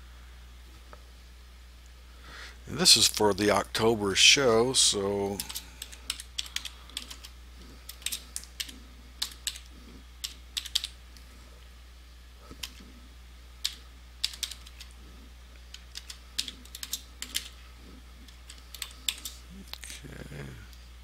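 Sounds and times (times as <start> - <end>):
low steady hum: 0.0 - 21.0
keyboard typing clicks: 5.4 - 7.3, 7.9 - 11.0, 13.6 - 14.9, 15.7 - 17.6, 18.2 - 19.4.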